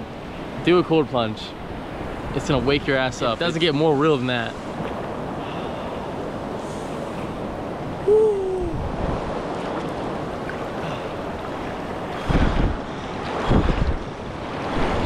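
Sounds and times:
river water rushing: 0.0 - 15.0
wind buffeting microphone: 6.0 - 15.0.

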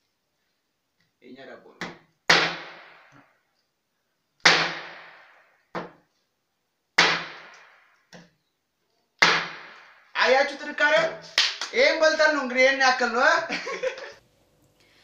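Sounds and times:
hard bread knocking on wooden table: 5.8 - 6.0.

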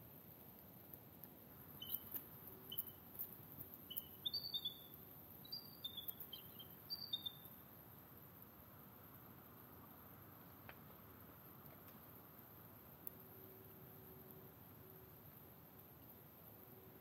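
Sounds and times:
eagle chirping: 1.8 - 7.5.

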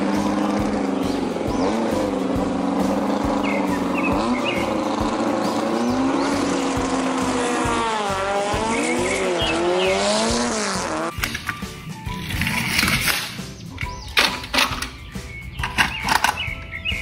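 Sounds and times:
drag cars revving and launching: 0.0 - 13.4.

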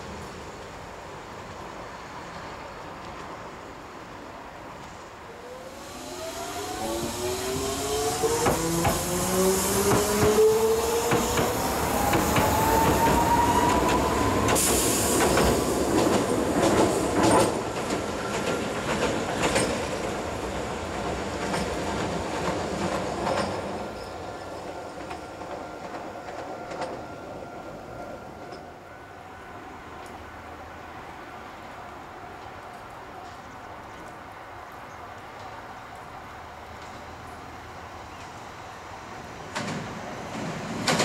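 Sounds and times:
tram motor whine: 5.4 - 18.4
wheels clicking over rail joints: 11.1 - 20.3.

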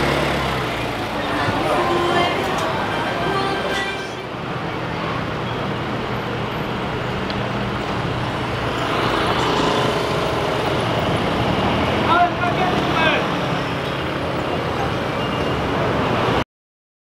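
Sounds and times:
scooters and cars passing: 0.0 - 16.4.

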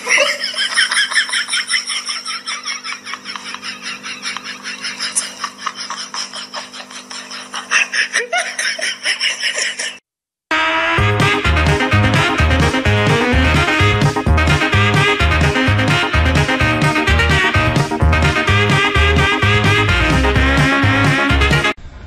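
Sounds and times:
rapid laughter: 0.0 - 10.0
background music with beat: 10.7 - 21.8.

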